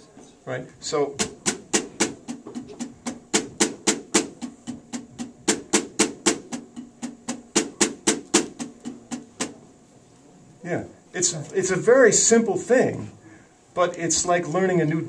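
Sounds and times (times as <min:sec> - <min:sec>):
snare drum strokes: 0:01.1 - 0:09.6.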